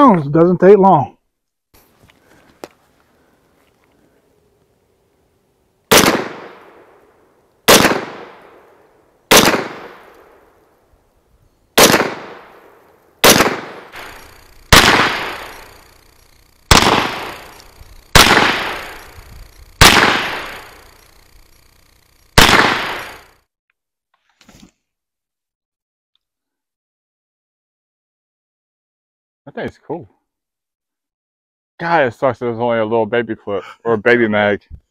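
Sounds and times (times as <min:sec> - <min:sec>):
carbine gunshots: 0:05.9 - 0:07.0, 0:07.6 - 0:08.6, 0:09.3 - 0:10.4, 0:11.8 - 0:21.8, 0:22.4 - 0:23.4.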